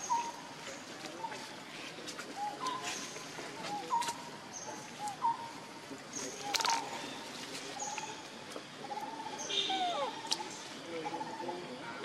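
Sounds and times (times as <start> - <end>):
short high animal calls: 9.5 - 10.3.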